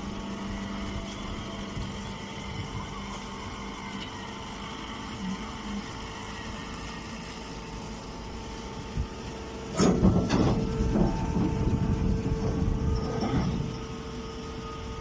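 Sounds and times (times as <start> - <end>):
baler motor hum: 0.0 - 15.0
rattling rumble: 9.6 - 14.2.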